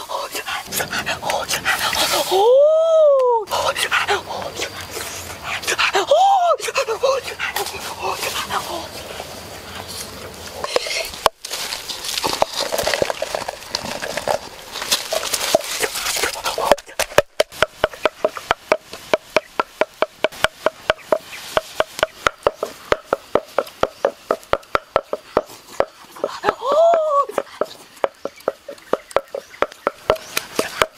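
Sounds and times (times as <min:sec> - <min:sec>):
rising and falling cry: 0:00.7 - 0:03.5
wooden pestle pounding in mortar: 0:17.0 - 0:30.9.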